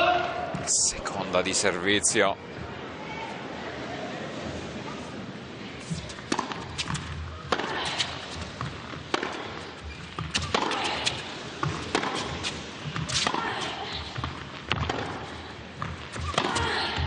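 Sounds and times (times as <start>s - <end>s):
crowd murmur: 0.2s - 14.5s
racket striking tennis ball: 5.8s - 17.0s
tennis ball bouncing: 5.8s - 17.0s.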